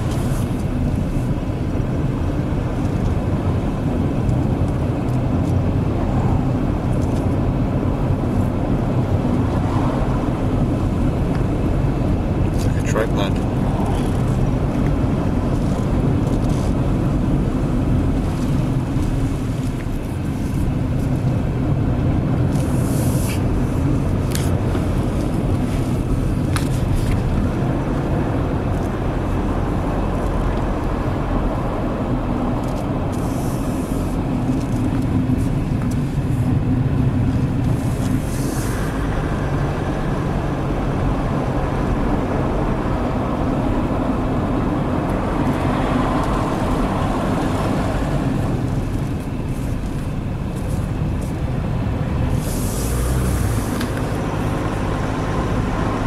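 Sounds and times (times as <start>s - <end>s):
car engine and tyre drone: 0.0s - 56.0s
brief higher hisses: 52.4s - 53.1s.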